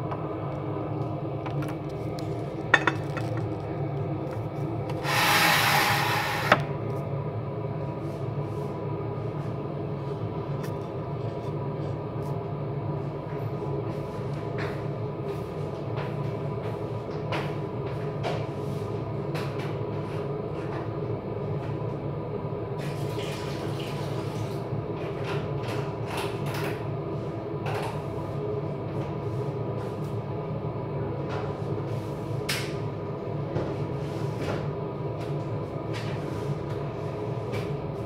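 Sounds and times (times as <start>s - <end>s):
appliance hum: 0.0s - 38.0s
dishes and utensils clinking: 2.7s - 3.4s.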